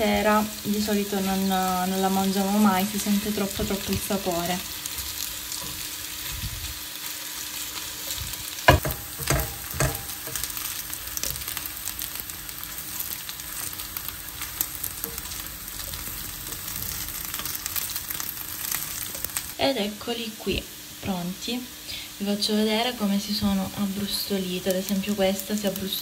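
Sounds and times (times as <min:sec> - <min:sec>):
pasta sizzling in a pan: 0:00.0 - 0:26.0
knocks against a pan: 0:08.7 - 0:10.1.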